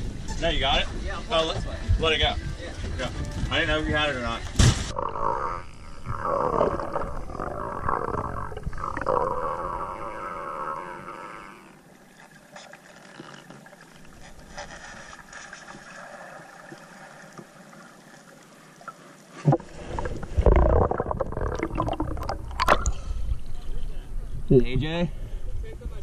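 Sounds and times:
churning water and bubbles: 4.9s - 23.6s
underwater thump: 19.4s - 23.2s.

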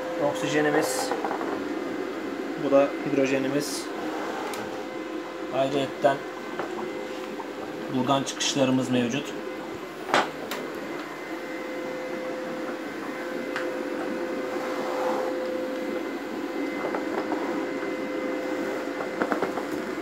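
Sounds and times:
generator hum and whine: 0.0s - 20.0s.

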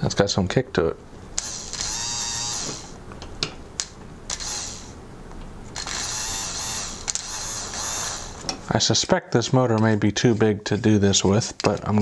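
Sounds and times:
sharp clicks: 7.0s - 7.9s.

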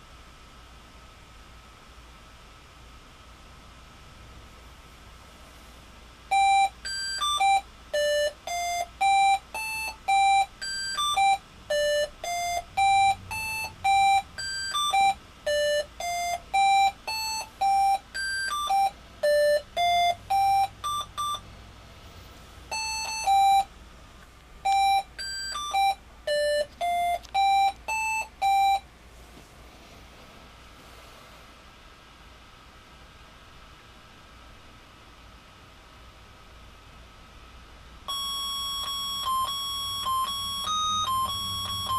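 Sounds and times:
melody of short electronic beeps: 6.3s - 21.4s, 38.1s - 41.9s.

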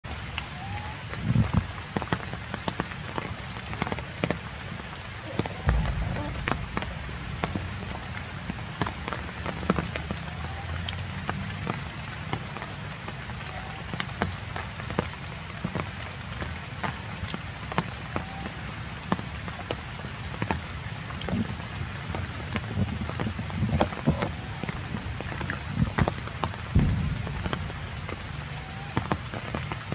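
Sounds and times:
rain drop ticks: 0.0s - 29.9s
rain hissing: 0.1s - 29.9s
low rumble: 5.2s - 10.2s, 26.6s - 28.7s.

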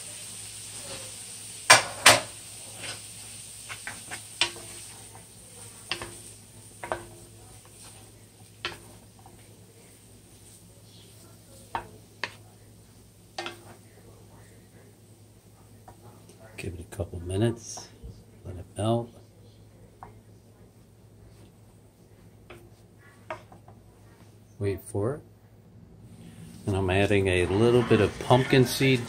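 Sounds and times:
frying sizzle: 0.0s - 23.9s, 26.1s - 29.0s
wooden spatulas knocking on a pan: 3.7s - 8.0s, 8.6s - 9.5s, 11.7s - 12.4s, 13.4s - 13.8s, 22.4s - 23.8s.

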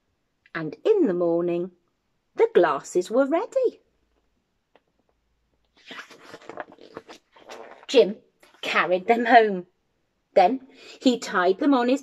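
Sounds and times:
book page rustling and turning: 5.8s - 8.0s.

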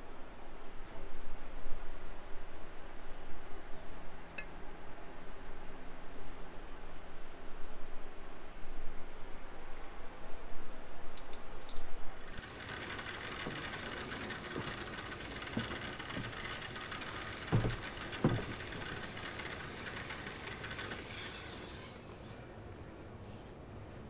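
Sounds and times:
clattering: 12.3s - 22.0s.

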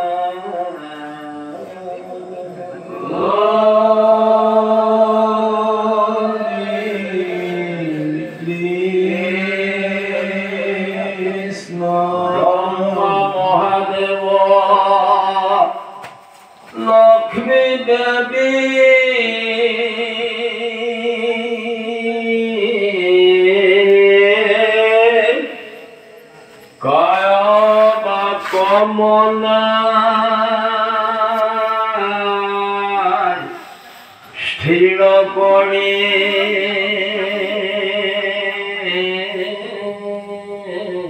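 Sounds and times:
congregation chanting: 0.0s - 41.0s.

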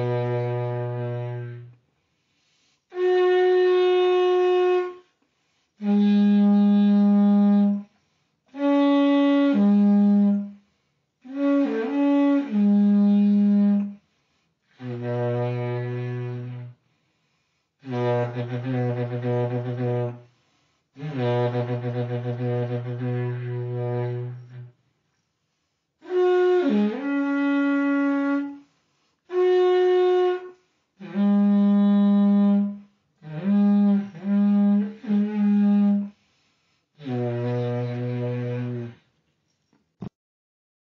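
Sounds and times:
plastic pipe blown like a horn: 0.0s - 1.9s, 2.9s - 17.0s, 17.8s - 24.8s, 26.0s - 39.1s.

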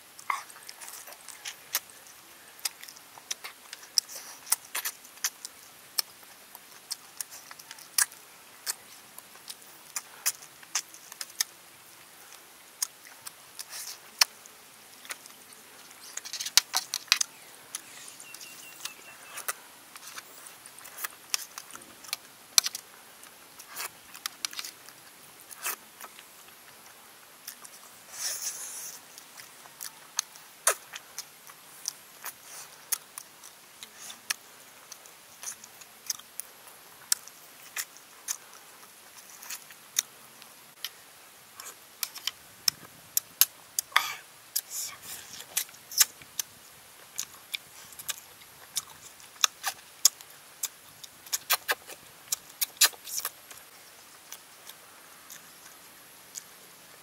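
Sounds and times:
man chewing: 0.2s - 41.0s, 41.6s - 56.6s
mouth clicks and lip smacks: 27.4s - 36.4s, 41.6s - 56.5s.

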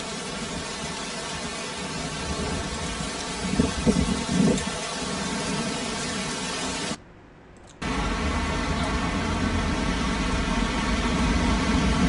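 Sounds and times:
flowing floodwater: 0.0s - 7.0s
heavy rain: 0.0s - 7.0s, 7.8s - 12.0s
low rumble: 7.1s - 12.0s.

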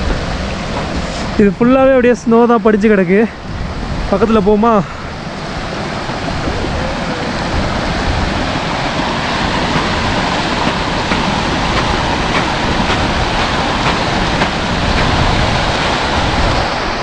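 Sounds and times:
stream rushing over stones: 5.4s - 17.0s.

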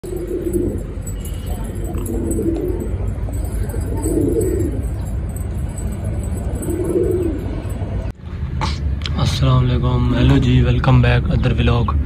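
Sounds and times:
pigeons cooing: 0.0s - 7.8s
steady low rumble: 0.0s - 12.0s.

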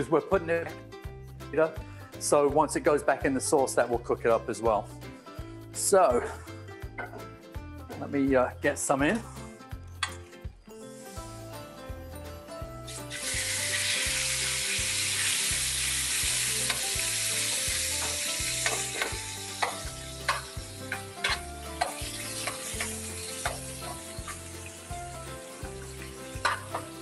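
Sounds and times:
chicken sizzling in hot oil: 10.9s - 11.8s, 12.9s - 27.0s
metal spoon scraping pan: 18.6s - 24.4s, 26.4s - 26.9s.

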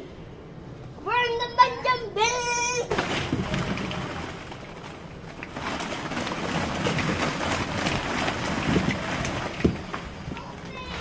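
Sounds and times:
low background hum: 0.0s - 11.0s
plastic balls clattering: 2.9s - 11.0s.

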